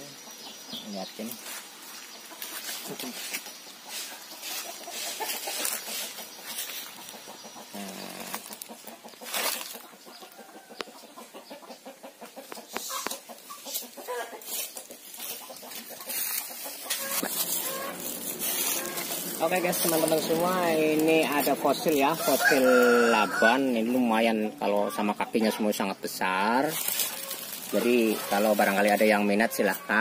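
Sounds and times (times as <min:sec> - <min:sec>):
chickens clucking: 0:00.0 - 0:30.0
foliage rustling: 0:01.2 - 0:07.2, 0:07.8 - 0:09.9, 0:13.1 - 0:24.2, 0:26.4 - 0:30.0
footsteps crunching dry leaves: 0:01.3 - 0:07.2, 0:08.0 - 0:09.9, 0:12.8 - 0:24.3, 0:26.6 - 0:30.0.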